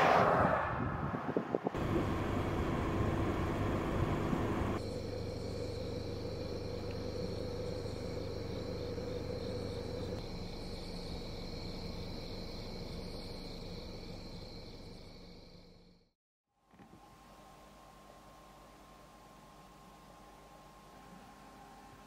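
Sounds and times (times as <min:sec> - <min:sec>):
low steady hum: 0:01.8 - 0:15.6, 0:16.7 - 0:22.0
crickets and insects chirping: 0:01.8 - 0:16.1.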